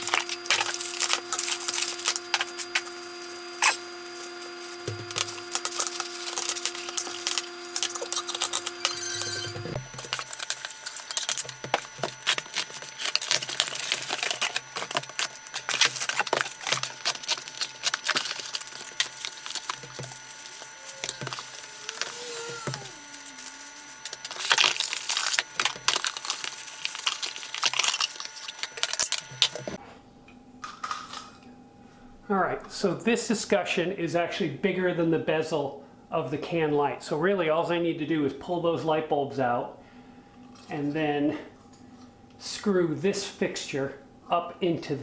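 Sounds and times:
packaging crinkling and rustling: 0:00.0 - 0:02.9, 0:05.0 - 0:09.0, 0:09.8 - 0:29.8.

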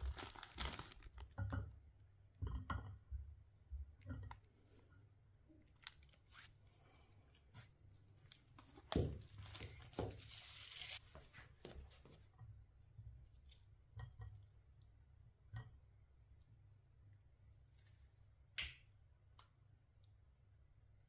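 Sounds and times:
plastic wrapping tearing and crinkling: 0:00.0 - 0:01.4, 0:05.6 - 0:06.5, 0:08.3 - 0:11.0.

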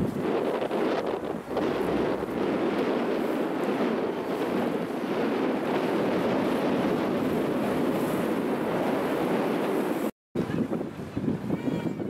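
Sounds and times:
boat engine rumble: 0:00.0 - 0:12.0
water noise: 0:00.0 - 0:12.0
wind buffeting microphone: 0:00.0 - 0:12.0.

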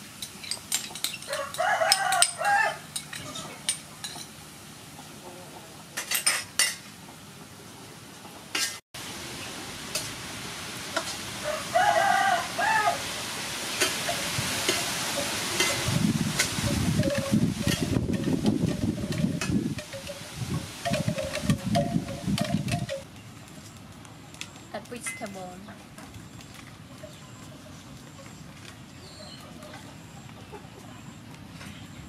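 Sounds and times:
rooster crowing: 0:01.2 - 0:02.9, 0:11.4 - 0:13.2
beef sizzling in a wok: 0:09.0 - 0:17.9
metal spatula scraping wok: 0:13.8 - 0:22.2.

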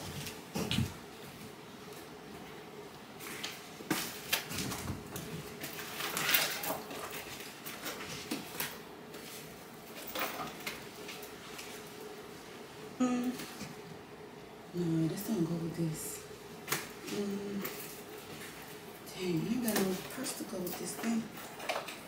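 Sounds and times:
rustling clatter: 0:03.9 - 0:11.9.

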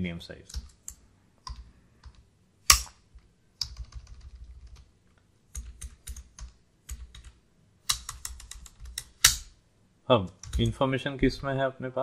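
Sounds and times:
typing on computer keyboard: 0:03.6 - 0:04.9, 0:05.5 - 0:09.3, 0:10.3 - 0:10.7.

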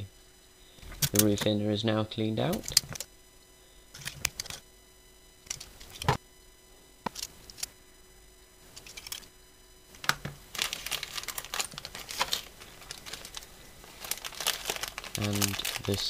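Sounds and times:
plastic bag crinkling: 0:10.0 - 0:16.0.

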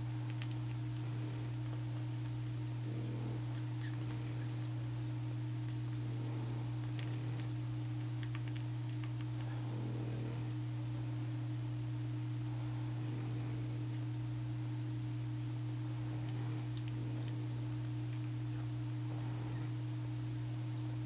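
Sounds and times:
low electrical hum: 0:00.0 - 0:21.0
faint clicks: 0:00.2 - 0:02.4, 0:03.6 - 0:04.6, 0:06.8 - 0:09.5, 0:16.2 - 0:18.7.

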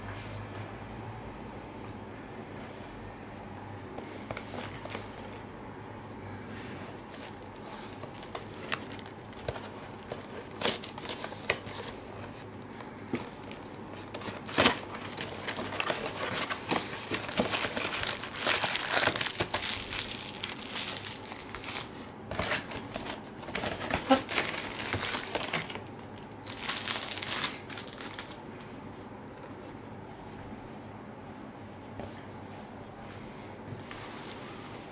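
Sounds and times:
plastic packaging crinkling: 0:07.0 - 0:28.4.

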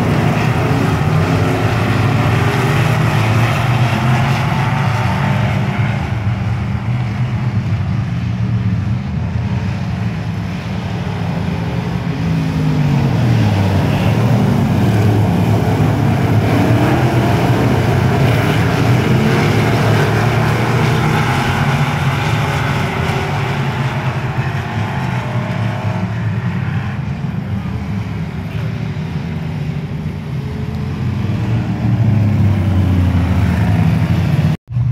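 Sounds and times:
race car engines running hard: 0:00.0 - 0:34.9
race car passing close: 0:11.0 - 0:34.9.

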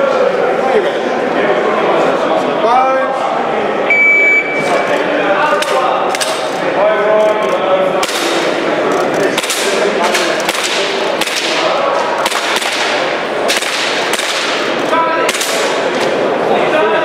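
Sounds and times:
airsoft pistol shots echoing: 0:09.4 - 0:15.9.

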